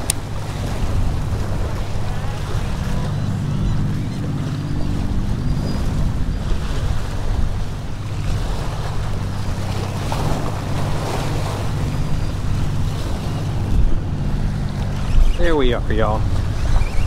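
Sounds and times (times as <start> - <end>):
steady low hum: 0.0 - 17.0
wind buffeting microphone: 0.0 - 17.0.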